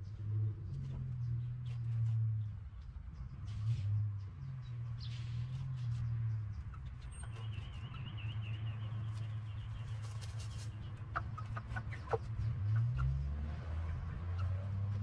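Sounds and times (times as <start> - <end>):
hens clucking: 10.0 - 13.1.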